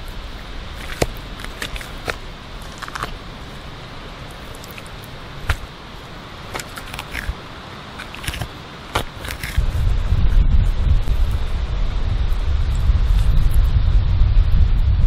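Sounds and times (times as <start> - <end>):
knife scraping fish scales: 0.8 - 3.6, 6.5 - 9.8
loud low rumble: 9.6 - 15.0.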